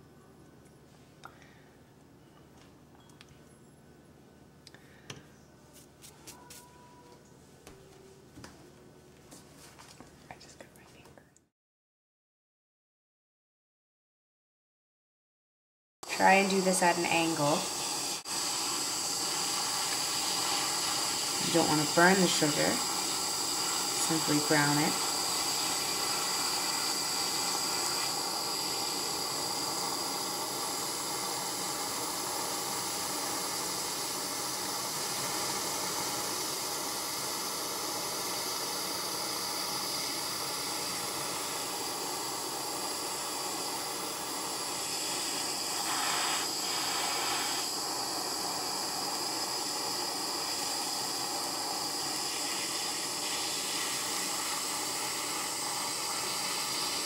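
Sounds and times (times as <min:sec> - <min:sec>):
kitchen torch flame hissing: 0:16.0 - 0:57.0.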